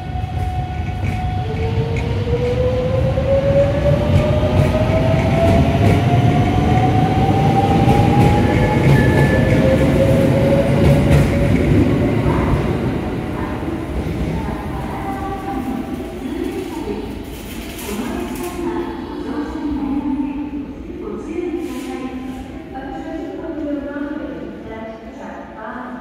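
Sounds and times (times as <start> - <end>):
train wheels rumbling: 0.0 - 20.1.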